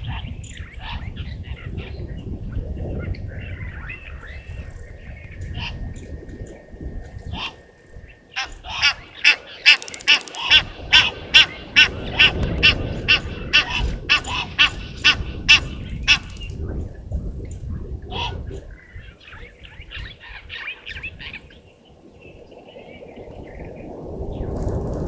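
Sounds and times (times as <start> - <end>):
repeated animal calls: 8.3 - 16.5.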